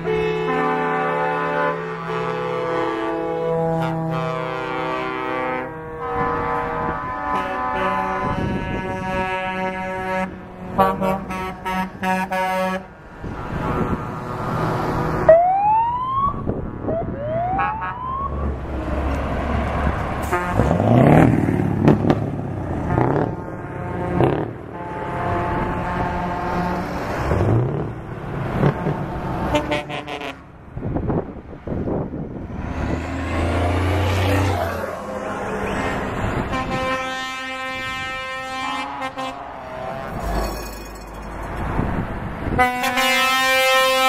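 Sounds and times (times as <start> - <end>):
air horn blasts: 0.0 - 12.9, 20.2 - 20.8, 22.8 - 26.9, 29.5 - 30.4, 36.4 - 40.8, 42.5 - 44.0
diesel truck engines passing: 0.0 - 44.0
siren whoops: 15.3 - 18.5.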